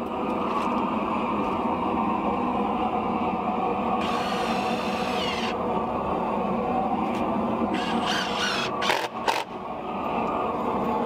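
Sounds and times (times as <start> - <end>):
steady mechanical drone: 0.0 - 11.0
power tool whining: 4.0 - 5.6, 7.8 - 9.5.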